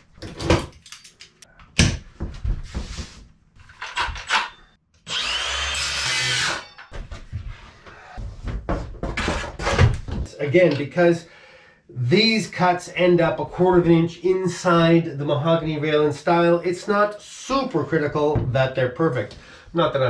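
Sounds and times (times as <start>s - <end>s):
tools and wood clattering: 0.0s - 2.4s, 3.6s - 4.8s, 6.4s - 7.3s
circular saw cutting plywood: 5.0s - 6.8s.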